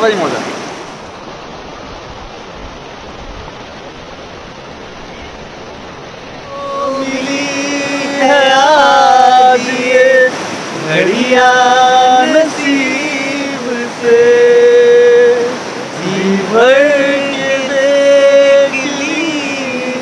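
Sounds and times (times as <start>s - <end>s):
river rushing: 0.0s - 20.0s
person singing a song: 6.5s - 20.0s.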